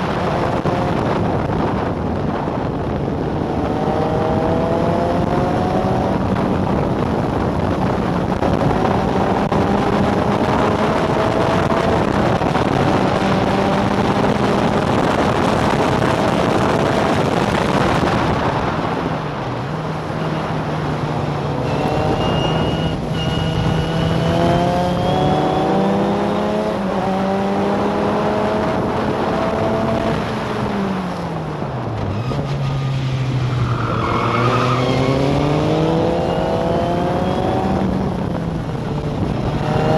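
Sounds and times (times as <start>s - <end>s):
wind rush: 0.0s - 39.9s
racing car engine revving: 21.4s - 30.8s, 33.6s - 38.3s, 39.1s - 39.9s.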